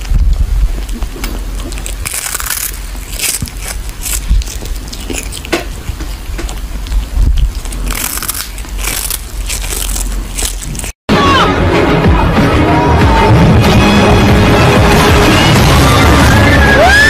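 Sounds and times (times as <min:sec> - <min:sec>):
kitten chewing dried fish: 0:00.0 - 0:11.0.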